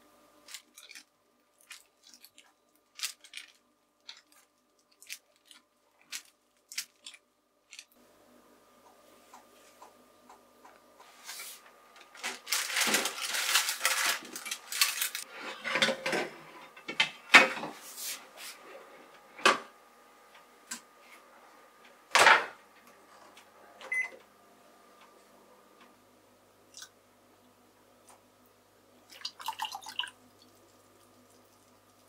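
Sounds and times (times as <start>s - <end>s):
faint steady hum: 0.0s - 32.0s
parchment paper crackling: 0.4s - 7.9s, 11.2s - 15.3s.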